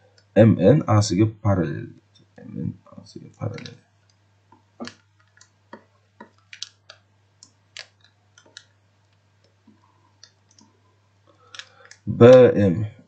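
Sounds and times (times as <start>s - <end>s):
faint low hum: 0.0s - 13.0s
stylus tapping on tablet: 4.5s - 10.6s.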